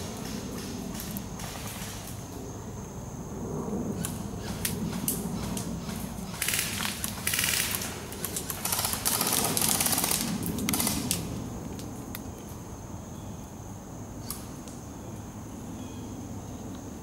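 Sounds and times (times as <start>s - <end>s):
airsoft rifle full-auto bursts: 6.4s - 11.0s.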